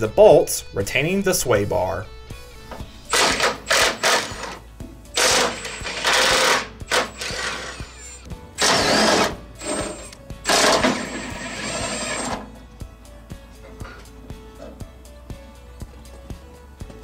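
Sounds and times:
impact wrench hammering: 3.1 - 4.6, 5.2 - 7.7, 8.6 - 12.4.

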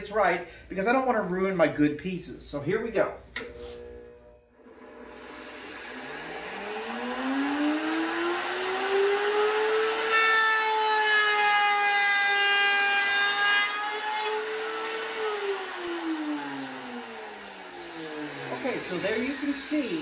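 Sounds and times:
router motor whine: 3.4 - 20.0
router bit cutting wood: 4.6 - 20.0.

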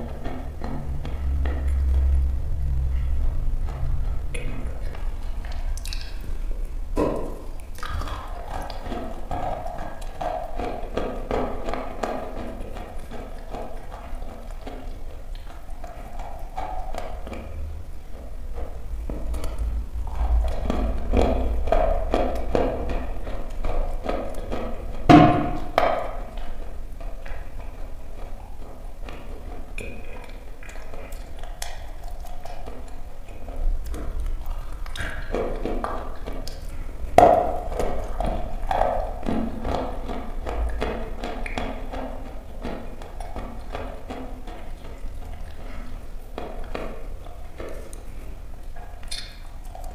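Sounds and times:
chewing crunchy chalk: 0.0 - 49.9
chalk crunching while chewed: 25.6 - 49.9.

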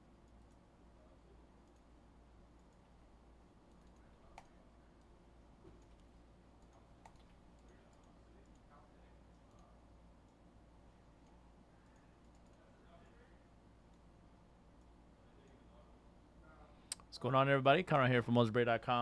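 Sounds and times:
low steady hum: 0.0 - 19.0
faint computer clicks: 1.6 - 3.0, 3.7 - 10.4, 11.2 - 13.0, 14.7 - 15.7.

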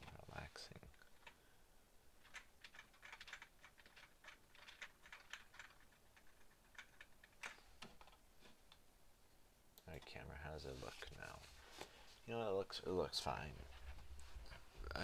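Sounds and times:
computer keyboard clicks: 2.2 - 8.2.

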